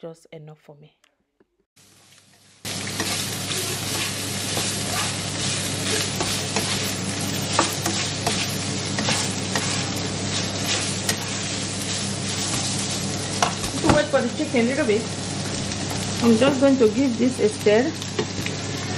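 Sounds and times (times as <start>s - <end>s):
chicken sizzling in oil: 1.8s - 18.9s
spatula scraping a pan: 3.0s - 12.9s.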